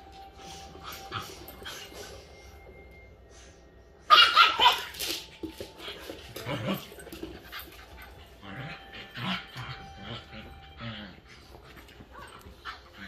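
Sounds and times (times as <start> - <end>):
dogs scuffling: 4.6 - 13.0.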